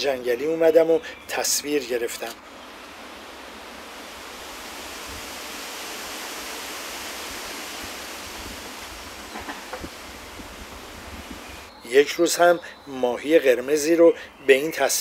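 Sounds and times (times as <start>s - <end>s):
steady rushing noise: 2.4s - 11.7s.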